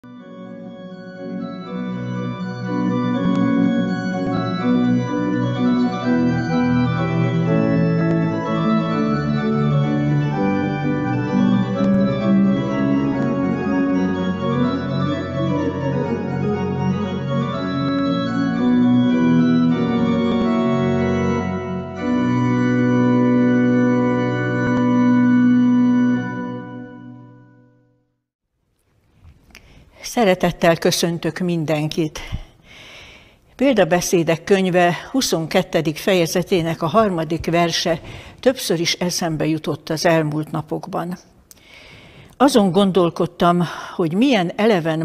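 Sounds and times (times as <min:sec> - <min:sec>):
organ chords: 0:00.0 - 0:28.0.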